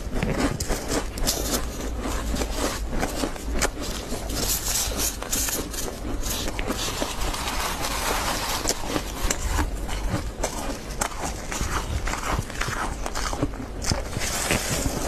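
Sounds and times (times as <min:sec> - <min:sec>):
frost crunching and crackling: 0:00.0 - 0:15.0.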